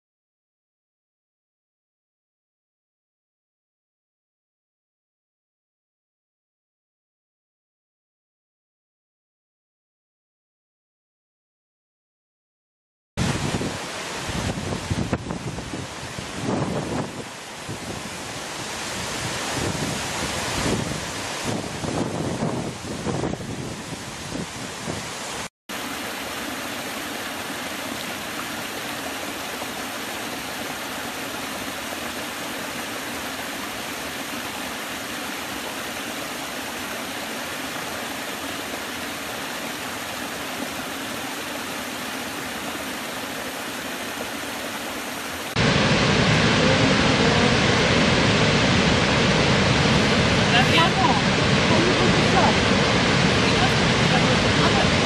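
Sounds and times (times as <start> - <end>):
huge waterfall roaring: 13.2 - 55.0
river pouring over waterfall: 13.2 - 55.0
stream cascading over rocks: 13.2 - 55.0.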